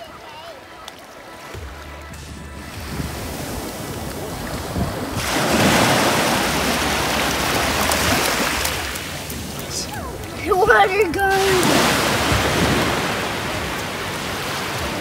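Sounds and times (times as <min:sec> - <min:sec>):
wind rumble on microphone: 0:02.1 - 0:15.0
small waves breaking on shore: 0:02.6 - 0:15.0.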